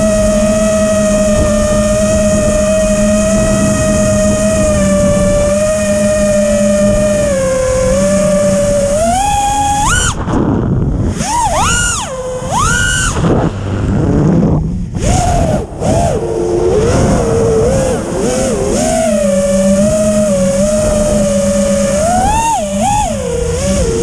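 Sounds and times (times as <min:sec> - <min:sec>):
quadcopter motors whining: 0:00.0 - 0:24.0
rushing air: 0:09.4 - 0:24.0.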